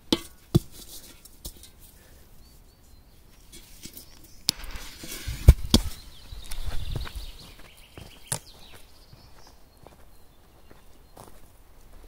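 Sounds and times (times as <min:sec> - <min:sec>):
heavy thumps: 0:04.5 - 0:07.1.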